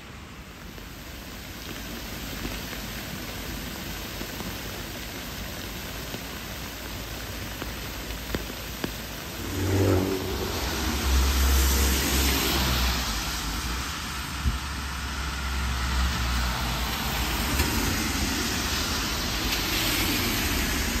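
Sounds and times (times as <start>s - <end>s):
steady rain hissing: 0.0s - 21.0s
vehicle engine approaching: 9.1s - 14.2s.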